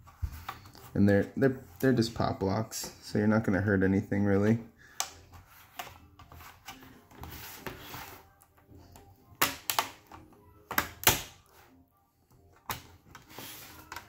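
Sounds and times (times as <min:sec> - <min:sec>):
plastic snap clips popping: 0:09.4 - 0:11.4.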